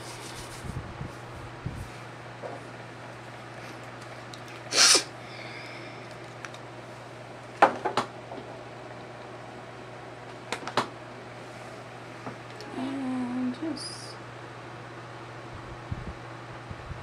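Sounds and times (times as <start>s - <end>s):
electric fan humming: 0.0s - 17.0s
short loud hiss: 4.7s - 5.1s.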